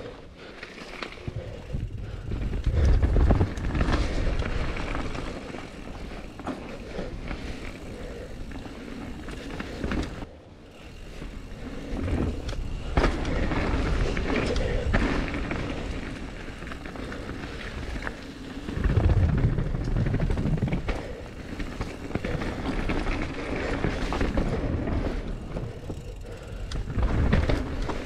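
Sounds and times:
bike tyres rumbling over dirt: 0.0s - 28.0s
wind buffeting microphone: 1.3s - 6.4s, 18.6s - 21.3s.

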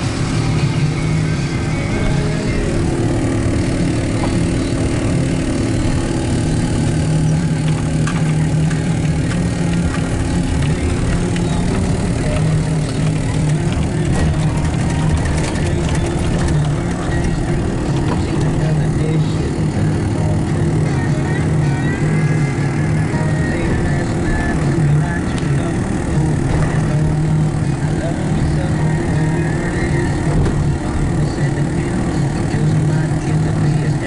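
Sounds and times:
rumbling noise: 0.0s - 33.8s
low engine drone: 0.0s - 34.0s
scattered clicks: 7.6s - 18.6s.

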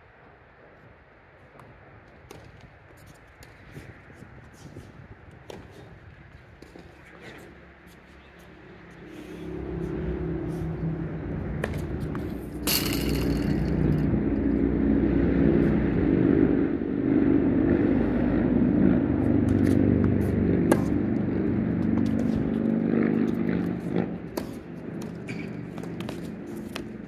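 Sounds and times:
low engine drone: 8.1s - 27.0s
tennis racket hitting ball: 11.6s - 14.2s, 19.5s - 21.4s, 22.0s - 27.0s.

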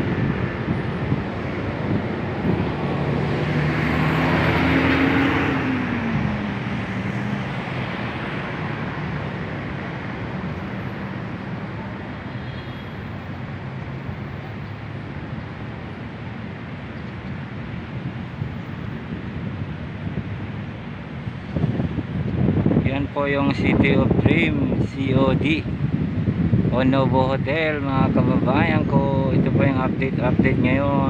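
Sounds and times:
vehicle passing by: 0.0s - 12.3s
traffic noise: 0.0s - 31.0s.

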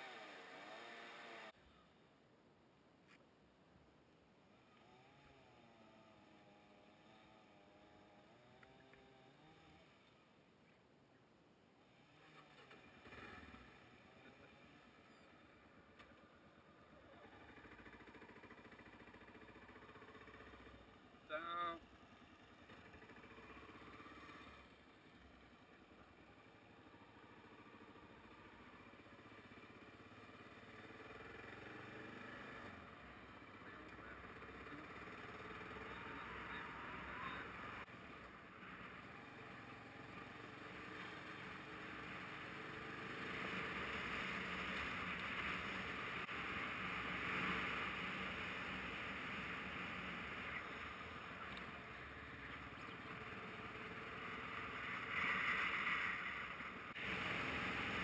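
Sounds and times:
wind: 0.0s - 58.0s
tyres on gravel road: 4.5s - 10.8s, 11.8s - 58.0s
motorcycle engine running: 16.6s - 21.2s, 21.9s - 58.0s.

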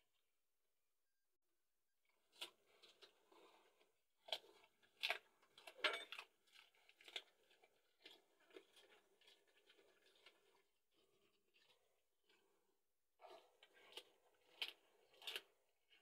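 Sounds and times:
dog chewing and crunching: 2.3s - 16.0s.

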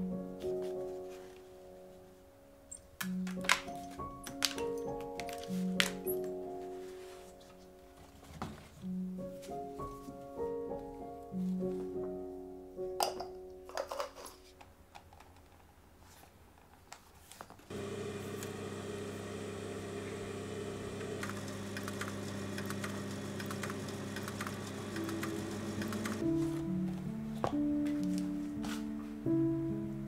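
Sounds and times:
small electric motor humming: 17.7s - 26.2s.

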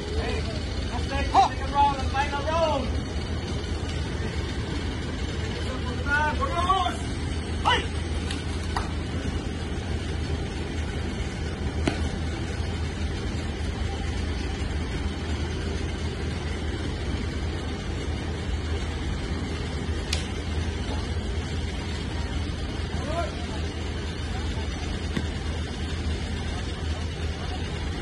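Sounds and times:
low engine-like rumble: 0.0s - 28.0s.

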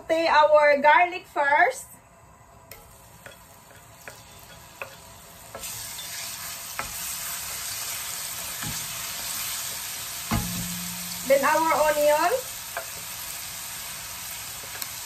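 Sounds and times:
garlic sizzling in oil: 2.7s - 15.0s
wooden spoon tapping pan: 10.2s - 13.1s.

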